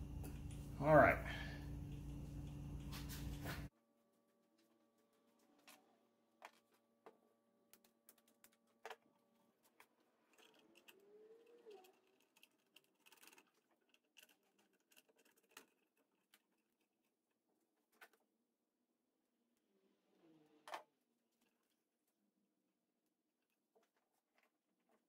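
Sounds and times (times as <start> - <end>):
faint squeak: 10.3 - 12.5.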